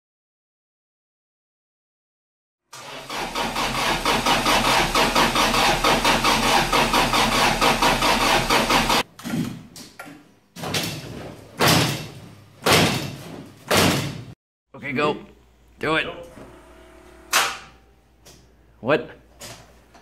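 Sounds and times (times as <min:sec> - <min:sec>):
engine cranking by starter motor: 0:02.7 - 0:09.0.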